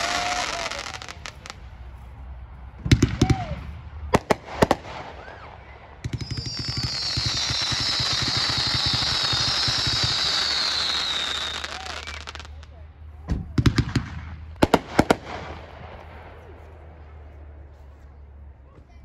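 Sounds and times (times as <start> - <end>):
firework whistling hiss: 0.0 - 1.6, 6.1 - 12.5
firework bangs: 0.0 - 2.0, 2.7 - 17.1
firework crackling: 0.0 - 2.2, 2.8 - 12.8, 13.4 - 16.5.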